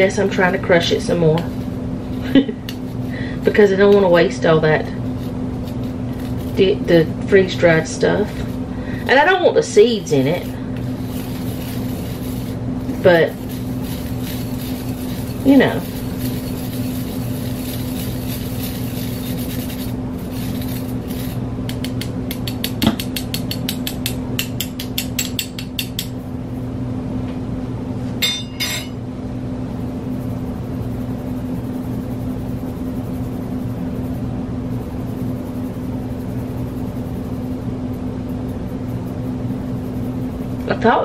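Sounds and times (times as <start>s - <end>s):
steady low hum: 0.0s - 41.0s
spoon rasping against mesh strainer: 7.7s - 26.2s
short clink: 28.2s - 29.0s.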